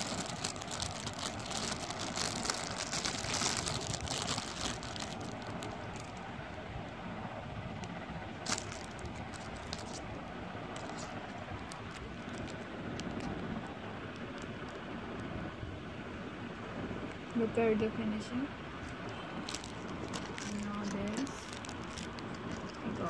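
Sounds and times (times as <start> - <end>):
plastic packet crinkling: 0.0 - 6.3, 7.8 - 15.3, 18.8 - 23.0
steady background noise: 0.0 - 23.0.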